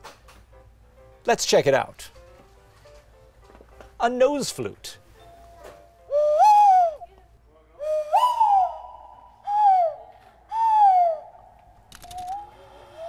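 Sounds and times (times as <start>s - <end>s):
nose flute sliding notes: 6.1s - 7.0s, 7.8s - 13.0s.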